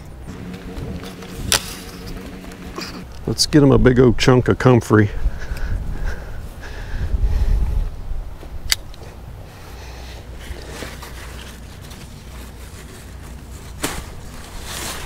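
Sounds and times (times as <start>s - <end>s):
leaves rustling: 0.0s - 3.5s, 10.3s - 15.0s
low rumble: 0.0s - 4.2s.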